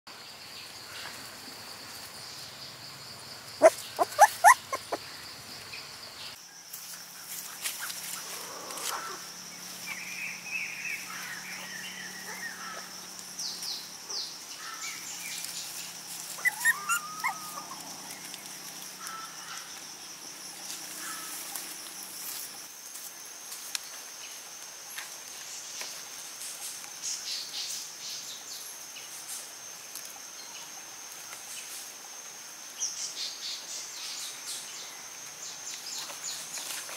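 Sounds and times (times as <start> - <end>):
puppies whining: 3.6 - 5.0, 16.4 - 18.2
puppies yelping: 3.6 - 5.0, 16.3 - 18.7.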